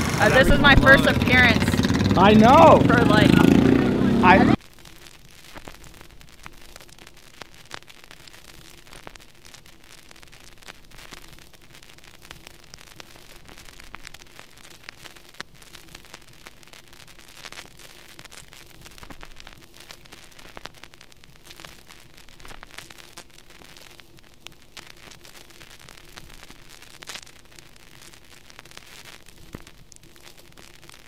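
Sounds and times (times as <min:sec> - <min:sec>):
crackles and pops: 0:00.0 - 0:31.0
static hiss: 0:00.0 - 0:31.0.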